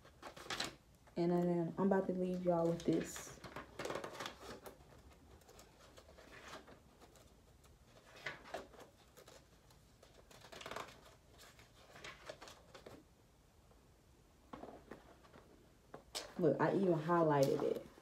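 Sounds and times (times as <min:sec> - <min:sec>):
book pages rustling: 0:00.0 - 0:00.8, 0:02.0 - 0:13.1, 0:14.5 - 0:18.0.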